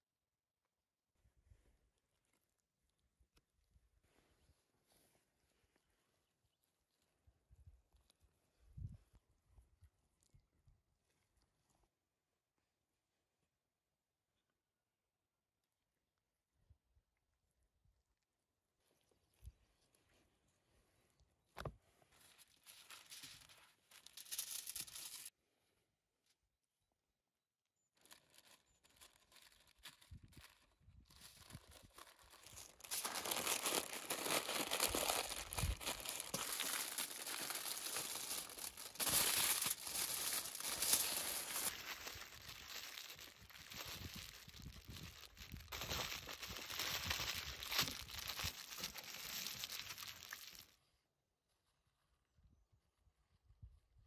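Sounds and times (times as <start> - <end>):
aluminium foil crinkling: 22.2 - 25.3, 28.0 - 50.7.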